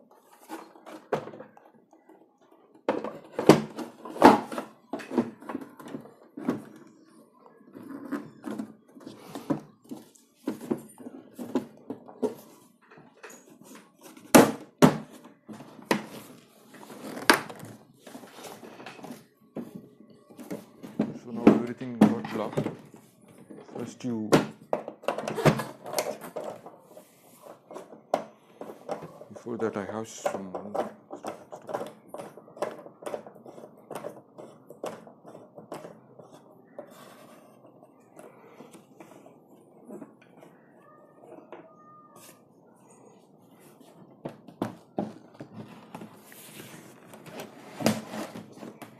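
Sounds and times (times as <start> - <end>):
plastic rubbing and handling: 0.0 - 14.4, 15.1 - 42.6, 43.4 - 48.9.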